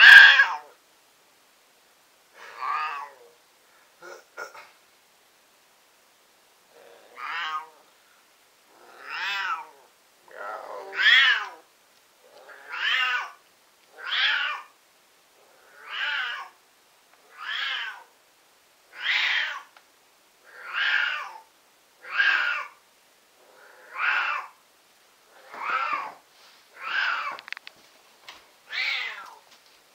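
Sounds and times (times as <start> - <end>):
cat yowling: 0.0 - 0.8, 2.4 - 3.4, 7.1 - 7.8, 8.8 - 9.9, 10.6 - 11.7, 12.4 - 13.4, 14.0 - 14.7, 15.8 - 16.6, 17.3 - 18.1, 18.9 - 19.7, 20.5 - 22.8, 23.8 - 24.6, 25.4 - 26.2, 26.8 - 27.4, 28.7 - 29.4.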